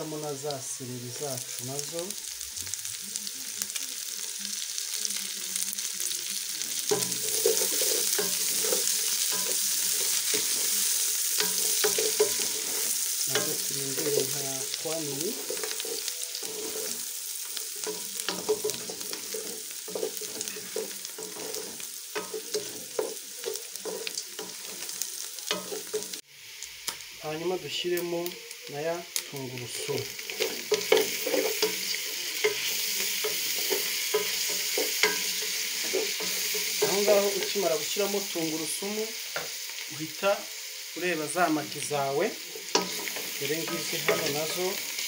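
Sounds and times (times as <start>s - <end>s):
vegetables and meat sizzling: 0.0s - 45.0s
wooden spoon scraping pot: 6.9s - 10.7s, 15.3s - 17.1s.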